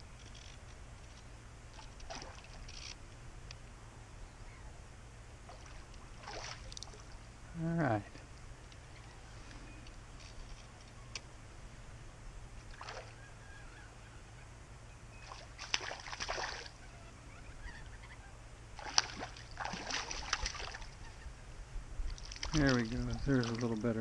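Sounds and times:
fish splashing at water surface: 0:15.3 - 0:16.7, 0:18.8 - 0:20.9.

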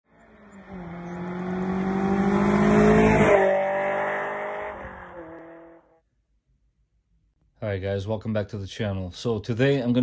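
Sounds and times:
car passing at speed: 0:00.1 - 0:06.0.

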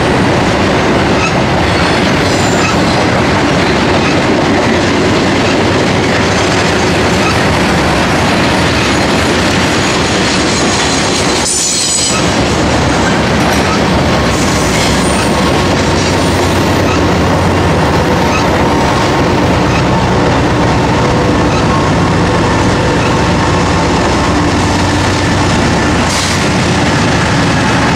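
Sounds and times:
freight train wheels rumbling: 0:00.0 - 0:27.9
train wheel squeal: 0:01.2 - 0:03.1, 0:09.7 - 0:17.0.

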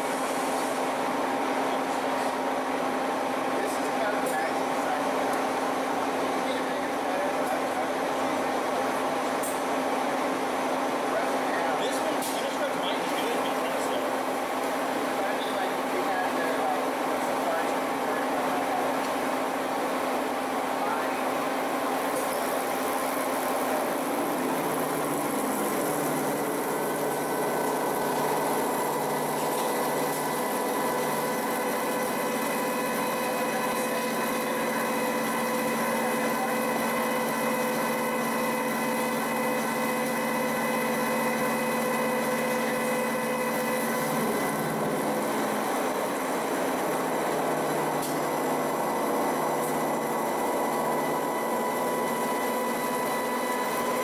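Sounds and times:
coolant hiss: 0:00.0 - 0:02.0, 0:20.1 - 0:54.0
milling machine droning: 0:00.0 - 0:54.0.

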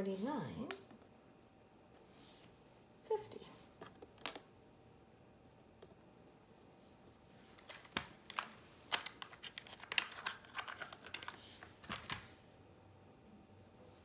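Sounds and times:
plastic tiles clicking and rattling: 0:07.6 - 0:12.2.

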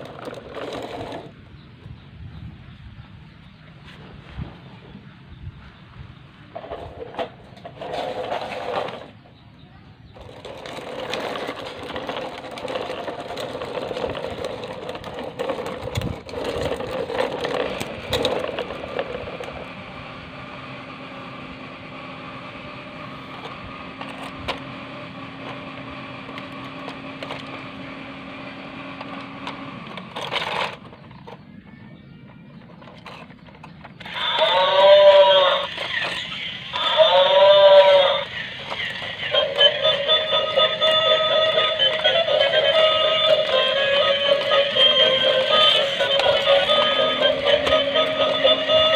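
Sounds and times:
toy gear motor whirring: 0:00.0 - 0:01.3, 0:07.7 - 0:09.1, 0:10.1 - 0:19.7, 0:23.1 - 0:31.5, 0:32.2 - 0:48.9
toy truck scraping on concrete: 0:00.0 - 0:01.4, 0:06.5 - 0:09.3, 0:10.1 - 0:48.9.

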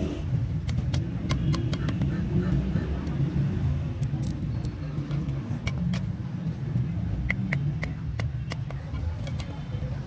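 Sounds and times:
wooden sticks clicking and knocking: 0:00.6 - 0:02.2, 0:07.2 - 0:09.7.

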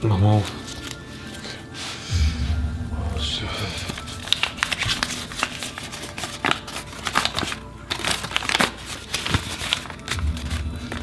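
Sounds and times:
paper crinkling and rustling: 0:00.0 - 0:01.6, 0:03.7 - 0:11.0.

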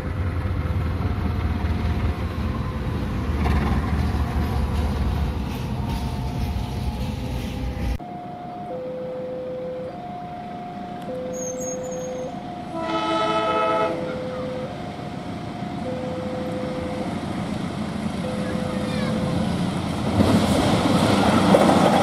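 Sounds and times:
two-note alternating tone: 0:08.0 - 0:17.2
locomotive horn: 0:11.3 - 0:14.7.

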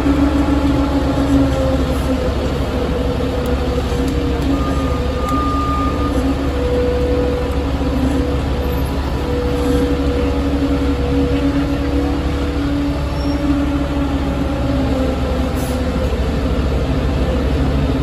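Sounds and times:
diesel truck engine running: 0:00.0 - 0:18.0.

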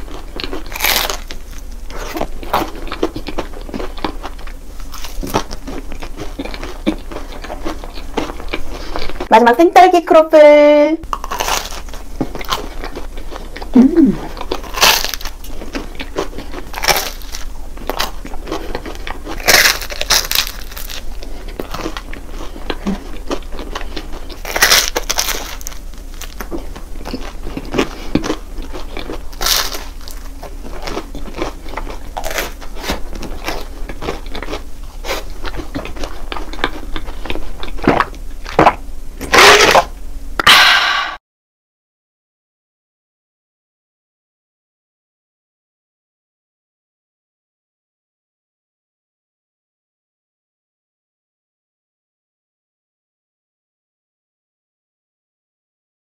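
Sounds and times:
crunchy chewing: 0:00.0 - 0:09.3, 0:11.1 - 0:39.9.

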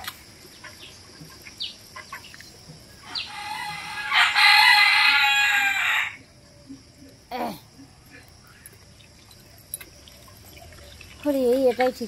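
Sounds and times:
rooster crowing: 0:03.1 - 0:06.2.

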